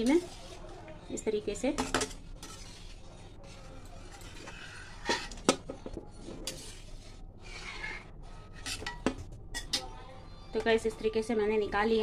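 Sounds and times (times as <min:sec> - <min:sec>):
metal spatula scraping pan: 0:00.0 - 0:00.8, 0:01.7 - 0:09.9.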